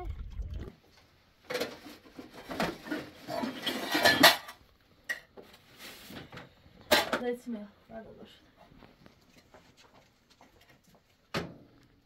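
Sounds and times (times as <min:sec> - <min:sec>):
dishes and pots clattering: 0:01.5 - 0:05.3.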